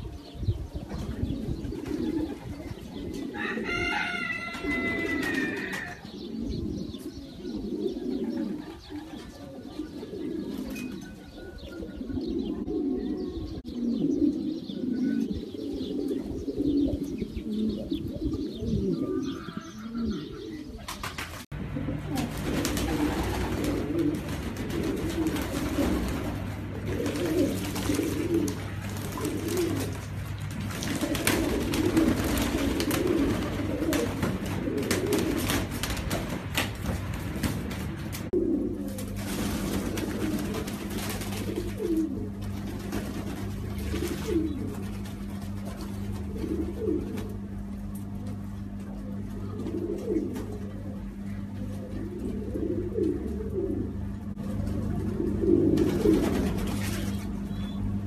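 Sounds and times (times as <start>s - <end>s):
pigeons cooing: 0.0s - 58.0s
low hum: 11.9s - 58.0s.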